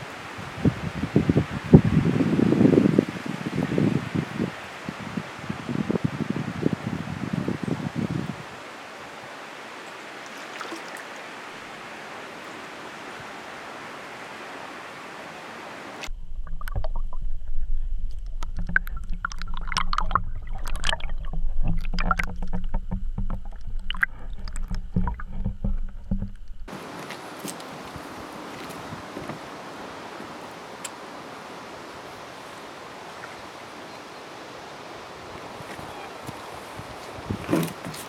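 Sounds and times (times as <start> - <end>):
soft outdoor hiss: 0.0 - 20.6, 24.1 - 38.0
water splashing against camera housing: 18.0 - 26.7.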